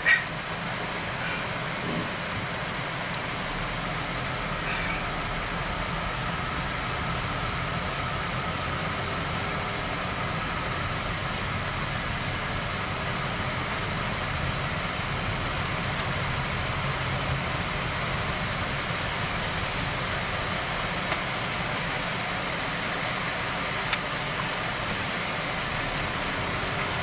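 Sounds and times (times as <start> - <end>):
car interior road noise: 0.0 - 27.0.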